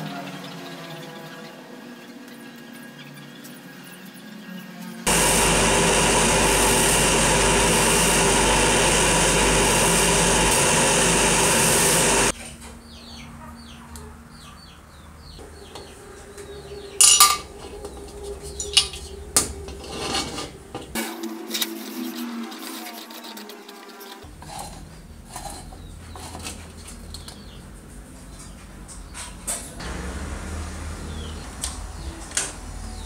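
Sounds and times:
wire wheel brush scrubbing metal: 5.1 - 12.3.

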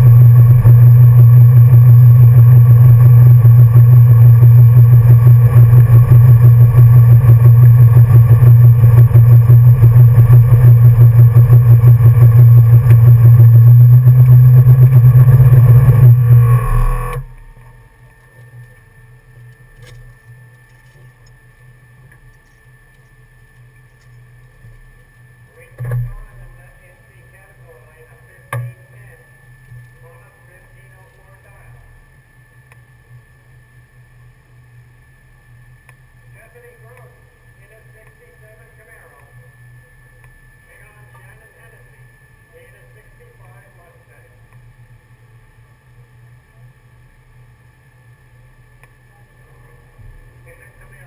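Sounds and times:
car engine running at low revs: 0.0 - 18.1.

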